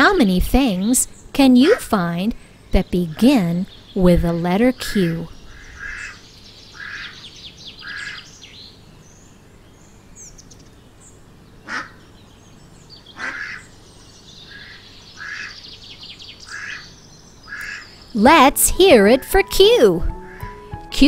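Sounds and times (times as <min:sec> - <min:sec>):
small birds chirping: 0:00.0 - 0:21.0
duck quacking: 0:13.2 - 0:13.6.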